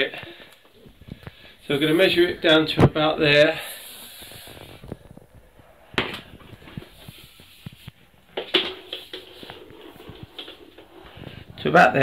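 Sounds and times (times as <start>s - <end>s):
faint rustling of tubing: 0.0s - 12.0s.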